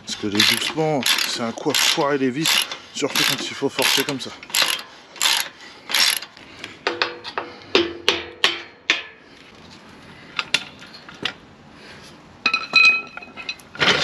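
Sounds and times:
ratchet wrench strokes: 0.1s - 6.3s.

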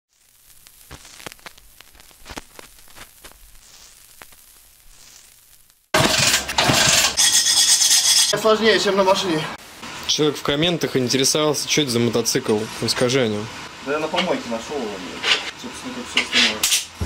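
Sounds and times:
faint crackle with clicks and pops: 0.1s - 6.0s.

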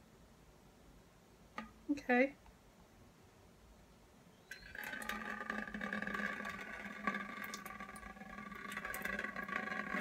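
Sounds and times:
liquid pouring and splashing: 4.5s - 10.0s.

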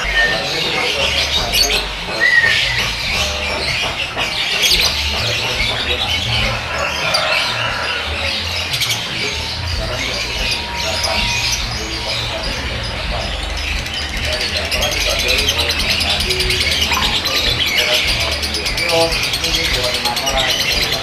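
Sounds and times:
lovebirds chattering and squawking: 0.0s - 21.0s.

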